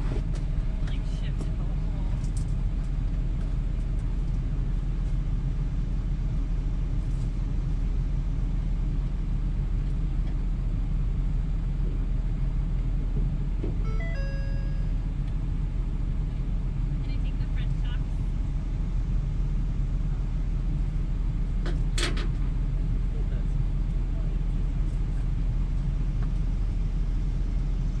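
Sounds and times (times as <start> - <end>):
truck engine idling: 0.0 - 28.0
electronic chime tones: 13.8 - 15.0.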